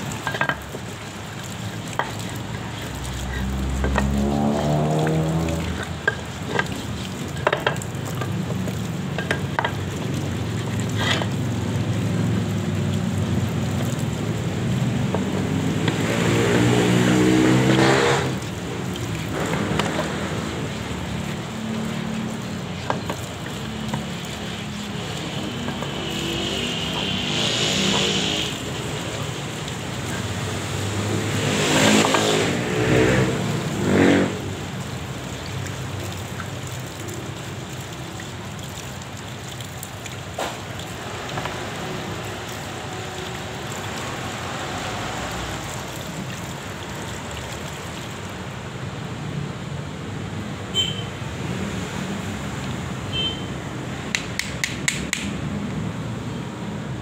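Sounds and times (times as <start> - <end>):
water pouring and splashing: 0.0 - 57.0
vehicle engine revving: 3.1 - 5.8, 15.2 - 18.6, 24.4 - 34.8
brake shoes scrubbed by hand: 10.5 - 11.4.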